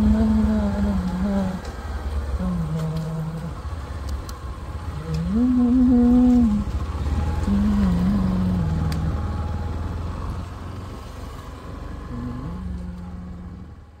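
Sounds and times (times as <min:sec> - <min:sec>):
motorcycle engine accelerating: 0:00.0 - 0:14.0
road and wind noise: 0:00.0 - 0:14.0.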